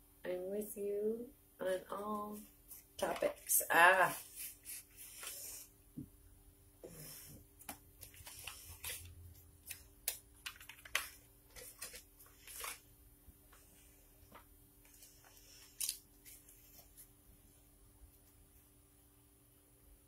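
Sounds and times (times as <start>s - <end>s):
cards being shuffled: 7.6s - 12.9s.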